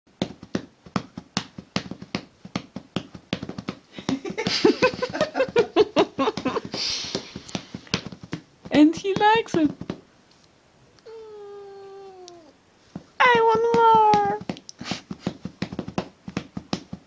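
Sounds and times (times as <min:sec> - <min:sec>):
hand patting cat: 0:00.2 - 0:10.0, 0:11.7 - 0:17.0
person speaking: 0:08.7 - 0:09.8, 0:13.2 - 0:14.5.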